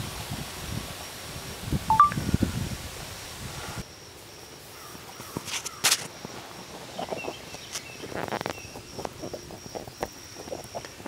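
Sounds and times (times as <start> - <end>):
bird chirps: 1.9 - 2.2.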